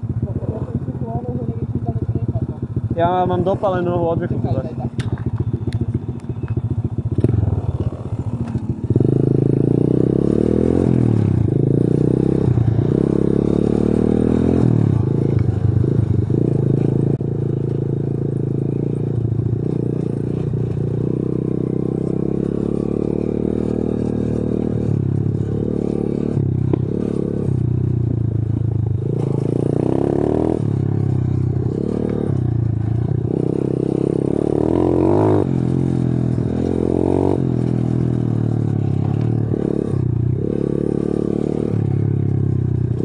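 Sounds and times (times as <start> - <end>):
motorcycle engine revving: 0.0 - 43.0.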